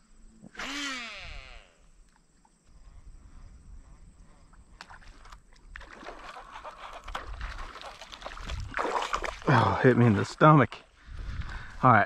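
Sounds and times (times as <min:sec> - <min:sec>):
water sloshing and splashing: 0:04.8 - 0:10.2.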